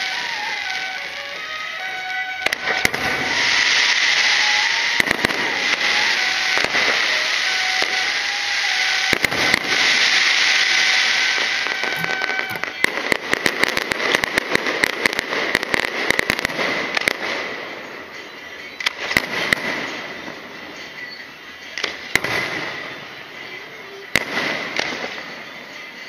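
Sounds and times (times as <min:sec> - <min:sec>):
fireworks crackling pops: 0:00.0 - 0:26.0
fireworks hissing: 0:00.0 - 0:26.0.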